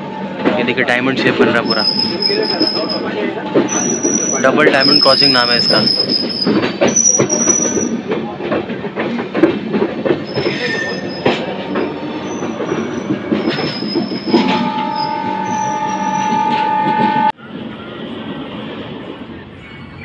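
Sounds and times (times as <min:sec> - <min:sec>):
train wheels clattering: 0:00.0 - 0:17.3
metallic wheel squeal: 0:01.3 - 0:08.0, 0:10.2 - 0:17.3.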